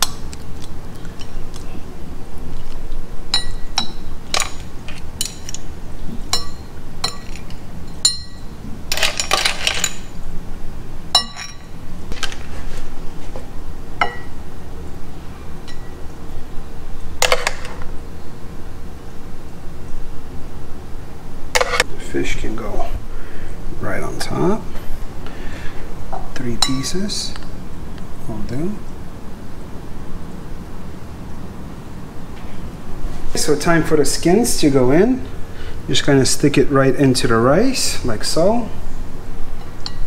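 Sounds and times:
spoons clinking on metal and plates: 3.4 - 5.6, 6.3 - 10.2, 11.2 - 11.8.

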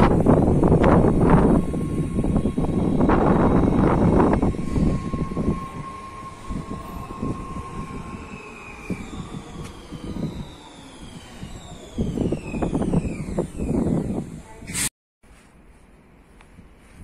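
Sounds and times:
train running past: 0.0 - 12.8
falling high tones: 0.0 - 14.1
steady whine: 0.0 - 14.6.

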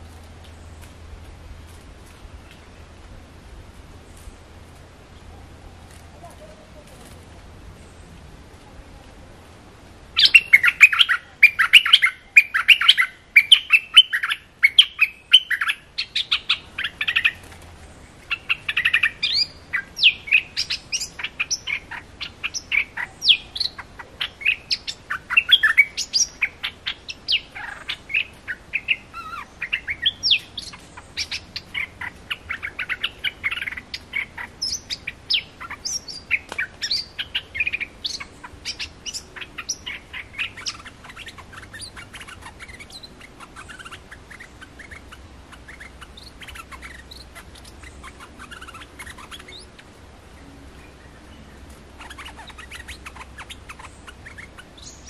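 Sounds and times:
bulbul chattering chirps: 10.2 - 17.5, 18.2 - 50.0, 52.0 - 55.0.

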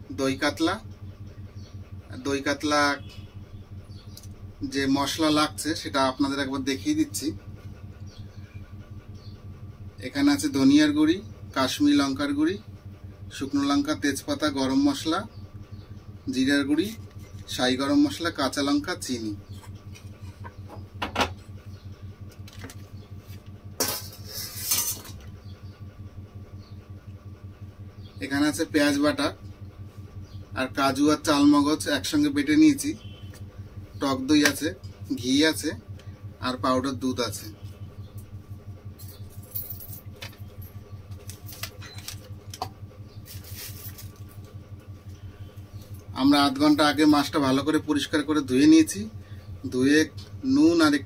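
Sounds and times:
steady low hum: 0.0 - 51.0
scraping handling noises: 22.4 - 25.3, 41.1 - 44.4.

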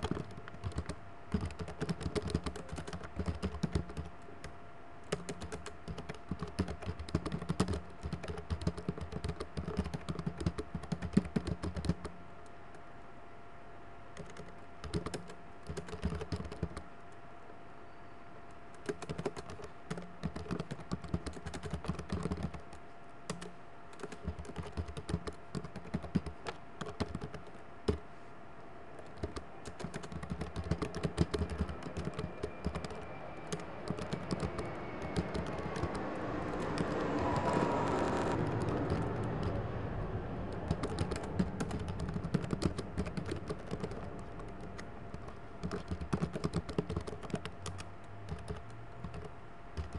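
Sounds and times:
typing on keyboard: 0.0 - 4.2, 5.1 - 12.2, 14.2 - 16.9, 18.7 - 28.0, 29.0 - 49.9
broad rushing sound: 31.7 - 45.6.

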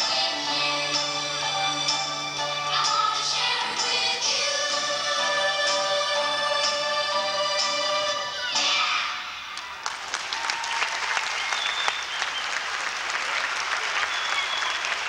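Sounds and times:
dance music: 0.0 - 9.6
audience applause: 9.5 - 15.0.

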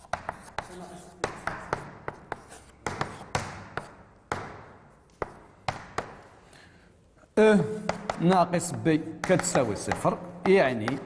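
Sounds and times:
chalk scratching on blackboard: 0.0 - 4.0, 7.9 - 11.0
chalk tapping on blackboard: 0.0 - 6.4, 7.8 - 11.0.

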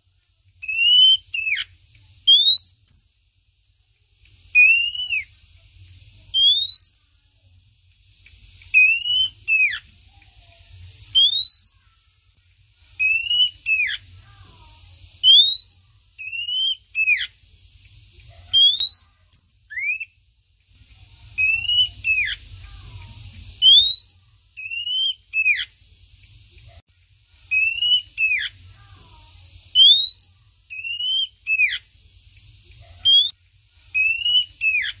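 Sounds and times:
magpie-robin whistling call: 0.6 - 3.1, 4.5 - 5.3, 6.3 - 7.0, 8.7 - 9.9, 11.0 - 11.8, 13.0 - 14.1, 15.2 - 17.4, 18.5 - 20.2, 21.4 - 22.4, 23.6 - 25.8, 27.5 - 28.6, 29.7 - 31.9, 32.9 - 35.0.

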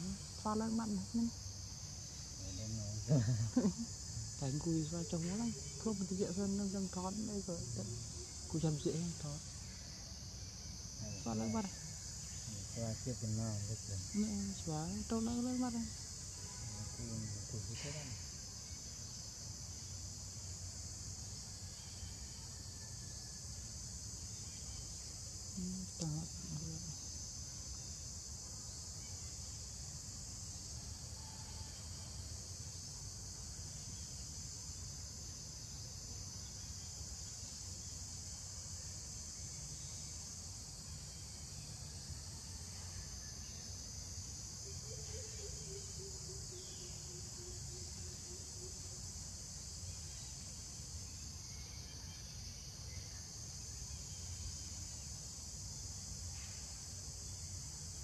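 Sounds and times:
high-pitched insect chorus: 0.0 - 58.0.

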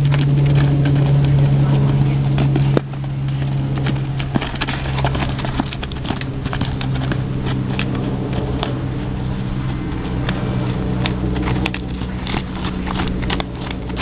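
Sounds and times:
hoofbeats on sand: 0.0 - 14.0
steady low hum: 0.0 - 14.0.

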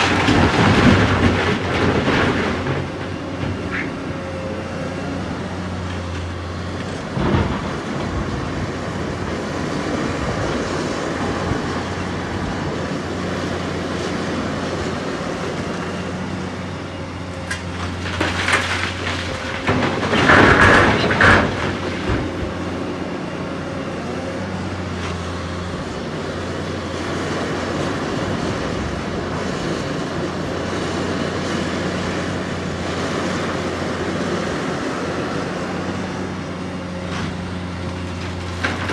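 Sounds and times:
excavator diesel engine running: 0.0 - 38.9
rock crashing into steel trailer: 18.0 - 22.4.

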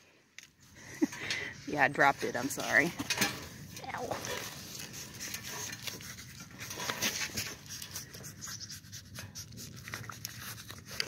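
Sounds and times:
small crunches and rustles: 2.4 - 11.0
goat chewing vegetables: 3.8 - 11.0.

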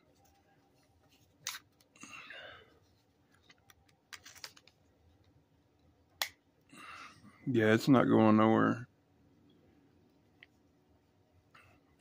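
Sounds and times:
handling rustle: 2.8 - 5.3.

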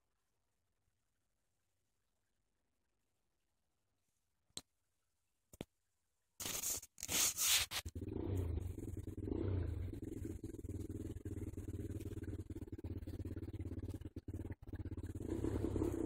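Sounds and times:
rustling against microphone: 6.4 - 8.0
cat purring: 7.5 - 16.0.

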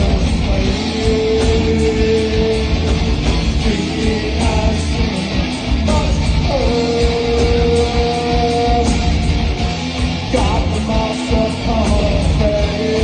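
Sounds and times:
person singing: 0.0 - 9.3, 10.3 - 13.0
live rock band playing: 0.0 - 13.0.

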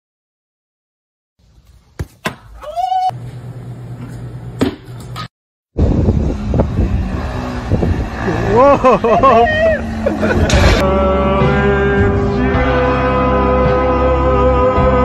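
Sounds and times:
person crying out: 2.6 - 3.2, 8.4 - 10.1
quad bike engine running: 5.8 - 10.6.

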